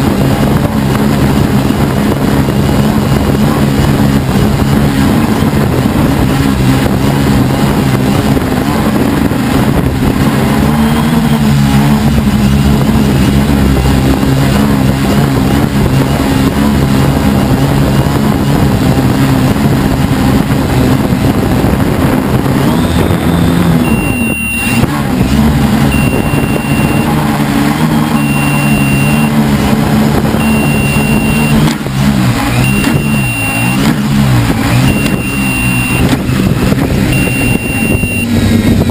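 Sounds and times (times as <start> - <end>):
drone motors and propellers: 0.0 - 38.9
short high electronic beep: 22.6 - 24.8, 25.9 - 27.2, 27.8 - 29.4, 30.4 - 31.8, 32.6 - 33.8, 34.8 - 36.2, 37.1 - 38.4.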